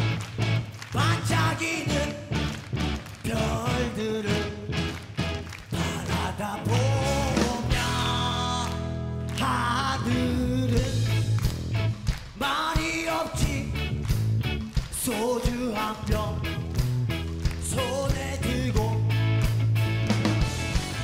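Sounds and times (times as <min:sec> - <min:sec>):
bass guitar: 0:00.0 - 0:21.0
electric guitar: 0:00.0 - 0:21.0
male lead vocal singing: 0:00.9 - 0:02.5, 0:03.2 - 0:04.8, 0:05.7 - 0:11.4, 0:12.4 - 0:13.9, 0:14.9 - 0:16.6, 0:17.6 - 0:19.1
drums steady beat: 0:10.7 - 0:21.0.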